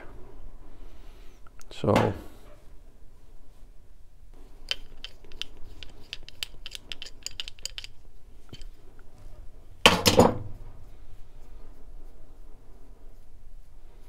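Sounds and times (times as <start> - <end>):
rustling and clatter: 4.4 - 14.0
hand tool metallic clicks: 4.6 - 8.7.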